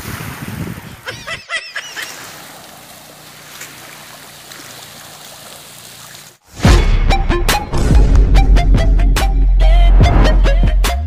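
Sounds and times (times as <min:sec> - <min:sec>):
wind: 0:00.0 - 0:06.6
surf: 0:01.7 - 0:06.4.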